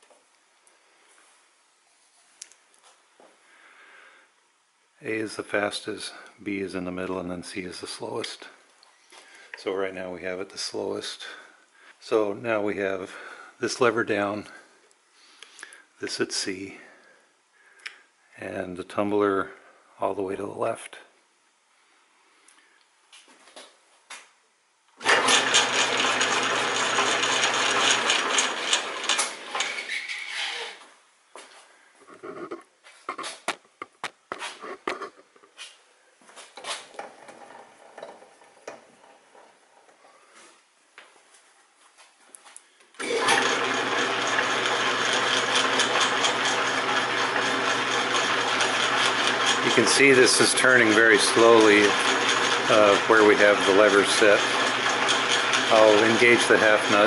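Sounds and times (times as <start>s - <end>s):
metal lathe motor humming: 25.0s - 29.7s, 37.0s - 39.5s, 43.0s - 57.0s.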